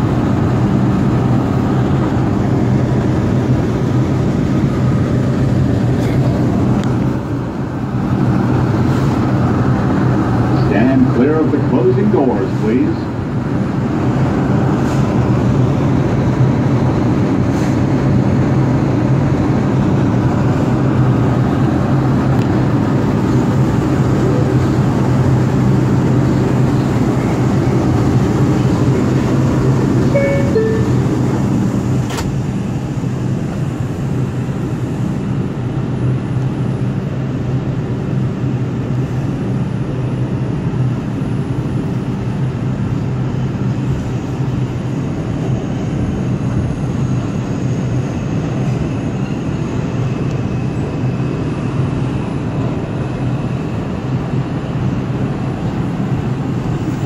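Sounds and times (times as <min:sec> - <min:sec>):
subway train rumbling in tunnel: 0:00.0 - 0:57.0
faint high tone: 0:30.1 - 0:31.2.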